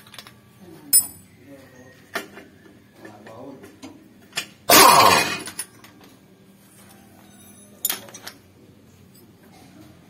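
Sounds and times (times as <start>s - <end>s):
metal clinks clattering: 0.9s - 1.3s, 7.3s - 8.4s
impact wrench burst: 4.7s - 5.5s.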